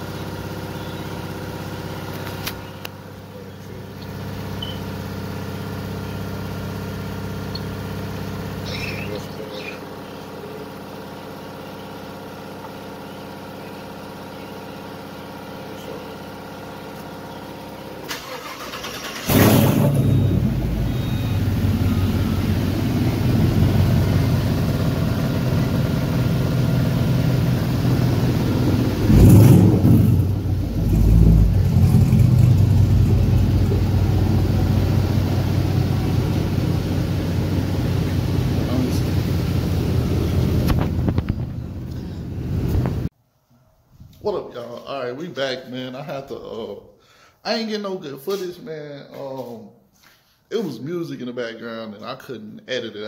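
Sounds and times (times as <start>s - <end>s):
car engine starting and idling: 0.0s - 43.1s
engine revving: 18.1s - 43.1s.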